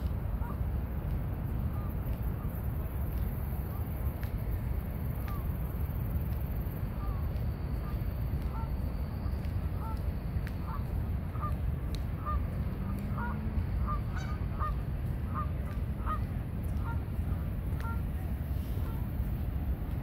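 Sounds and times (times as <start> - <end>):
steady low rumble: 0.0 - 20.0
geese honking: 0.4 - 0.6, 9.8 - 10.0, 10.6 - 11.6, 12.2 - 18.1.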